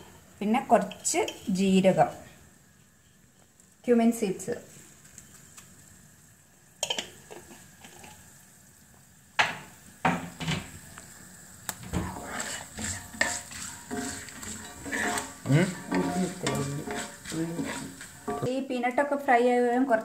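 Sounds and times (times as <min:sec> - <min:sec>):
food sizzling in oil: 0:00.0 - 0:20.0
wooden spatula scraping a pan: 0:11.9 - 0:18.5.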